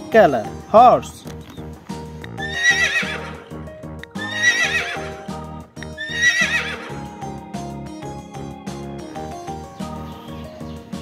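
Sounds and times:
background music: 0:00.0 - 0:11.0
horse whinnying: 0:02.4 - 0:03.6, 0:04.2 - 0:05.2, 0:06.0 - 0:07.1.

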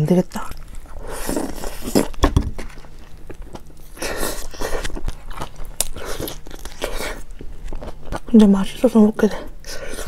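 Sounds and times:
crunching and chewing: 0:00.4 - 0:10.0
biting into a hot dog: 0:00.5 - 0:08.3.

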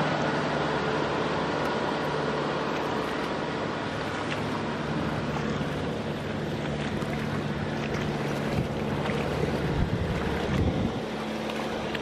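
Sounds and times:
feet splashing in muddy water: 0:00.0 - 0:12.0
low hum: 0:00.0 - 0:12.0
wind noise on microphone: 0:09.5 - 0:11.1.

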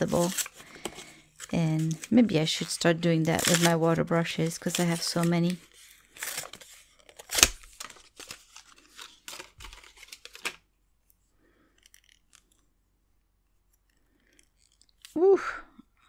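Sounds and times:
blister pack being torn open: 0:06.2 - 0:10.6.

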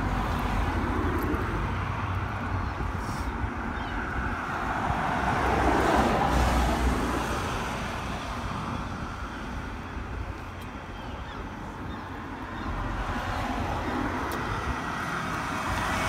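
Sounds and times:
road vehicle passing: 0:00.0 - 0:16.0.

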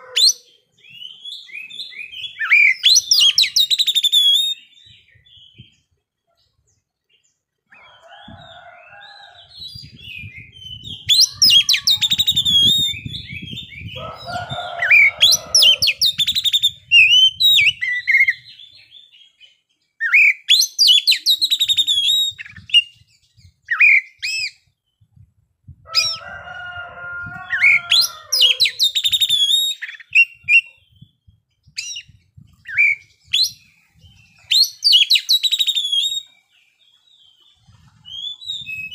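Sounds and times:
magpie-robin singing: 0:00.2 - 0:05.7, 0:09.5 - 0:14.0, 0:14.9 - 0:24.6, 0:27.5 - 0:37.5.

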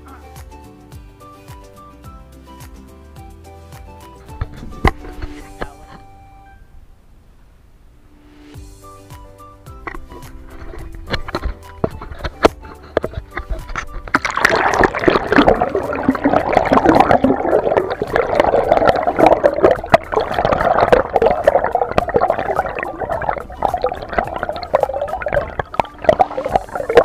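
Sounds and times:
background music: 0:00.0 - 0:06.9, 0:08.2 - 0:27.0
water gurgling underwater: 0:10.4 - 0:27.0.

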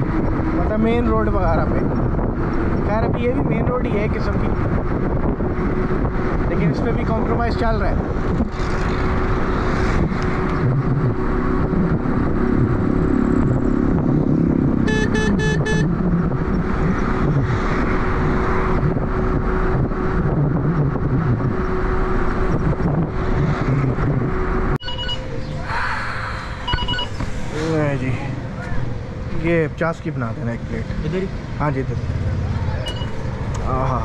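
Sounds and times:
street sounds: 0:00.0 - 0:34.0
wind and road rush: 0:00.0 - 0:34.0
vehicle horn toots: 0:14.8 - 0:15.9.

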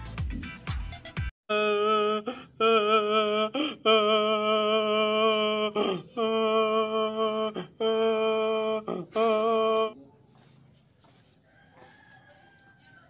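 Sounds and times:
man mock crying: 0:01.5 - 0:10.0.

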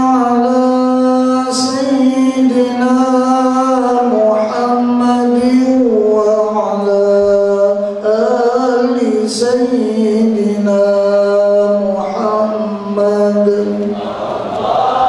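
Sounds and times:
men chanting: 0:10.8 - 0:15.0.

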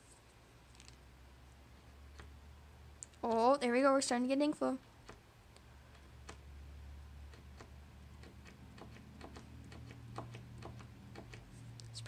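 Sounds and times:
marker tip tapping on paper: 0:07.3 - 0:11.5.

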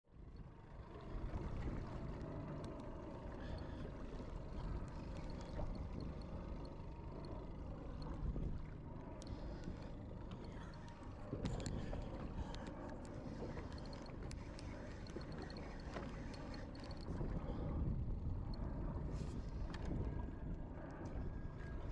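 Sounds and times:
wind: 0:00.0 - 0:21.9
boat motor humming: 0:00.2 - 0:21.9
water noise: 0:01.0 - 0:21.9
fishing reel ticking: 0:09.2 - 0:17.6.

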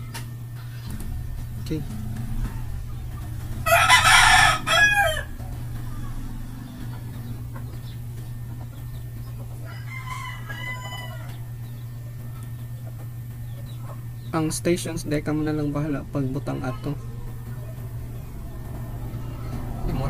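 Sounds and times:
low steady hum: 0:00.0 - 0:20.0
rooster crowing: 0:03.3 - 0:07.2, 0:09.4 - 0:11.6.

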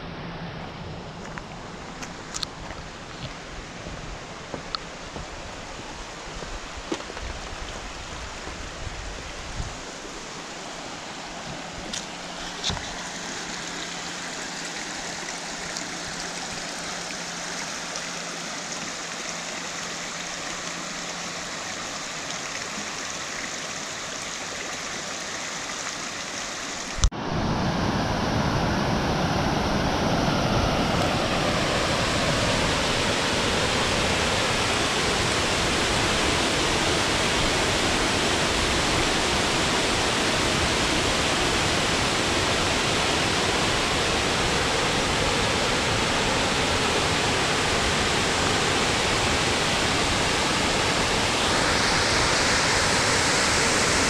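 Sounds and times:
creek flowing over stones: 0:01.1 - 0:27.1, 0:31.0 - 0:54.0
water pouring over waterfall: 0:12.0 - 0:27.1.

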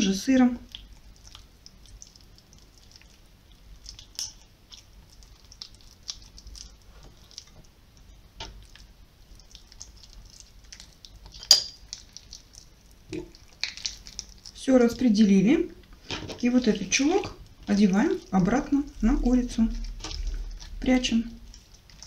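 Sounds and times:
raw meat squishing: 0:00.0 - 0:22.0.

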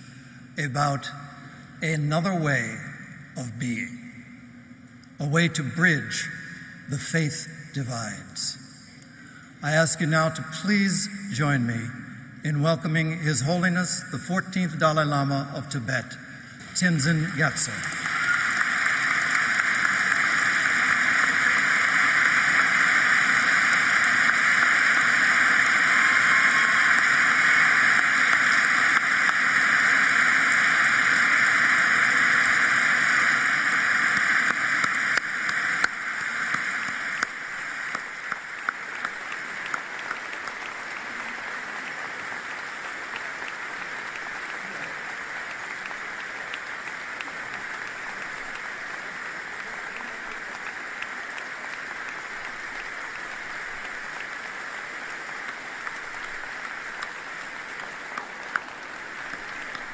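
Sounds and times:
large crowd applauding: 0:16.9 - 0:59.9.

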